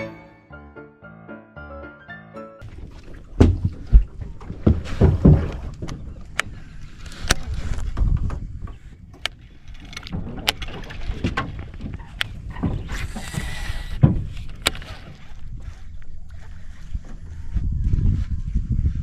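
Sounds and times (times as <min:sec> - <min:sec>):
gear knocking and clicking in boat: 0:02.7 - 0:17.3.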